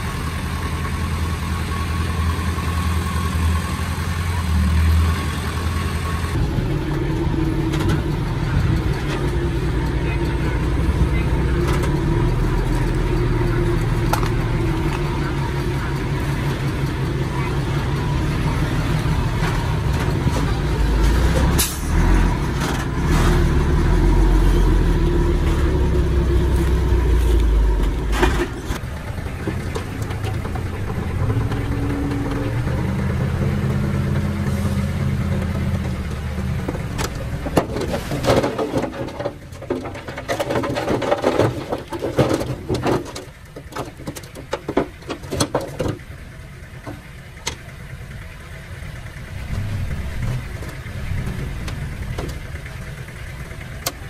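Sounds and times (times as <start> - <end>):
diesel machinery engine running: 0.0 - 54.0
metallic clanks and knocks: 35.3 - 46.1.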